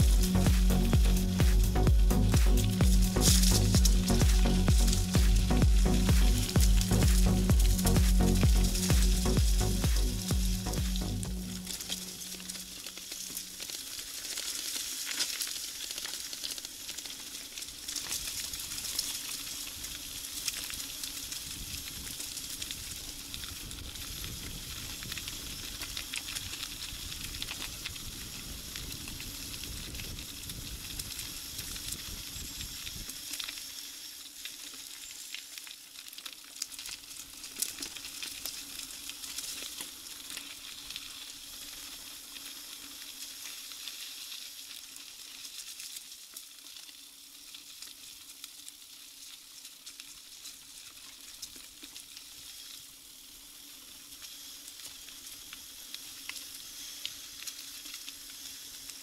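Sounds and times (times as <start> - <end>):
bike tyres rolling on gritty road: 0.0 - 56.5
wind rumble on microphone: 21.4 - 25.8, 26.4 - 33.1.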